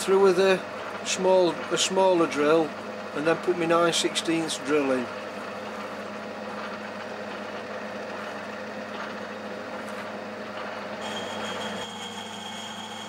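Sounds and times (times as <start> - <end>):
lathe motor and spindle hum: 0.0 - 13.0
high whine: 10.6 - 13.0.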